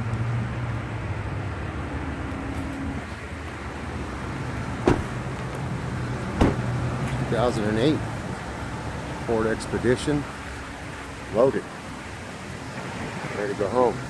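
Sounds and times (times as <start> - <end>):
car engine idling: 3.1 - 9.1.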